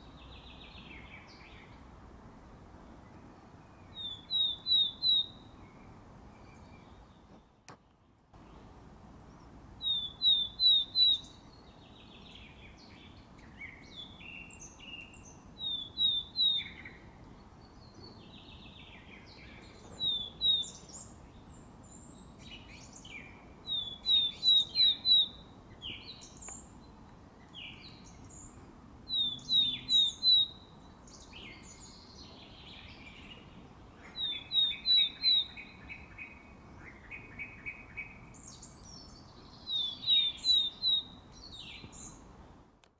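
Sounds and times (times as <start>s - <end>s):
song thrush singing: 0.0s - 42.9s
bird whistling song: 3.8s - 7.0s, 9.8s - 17.0s, 17.7s - 26.7s, 29.1s - 42.2s.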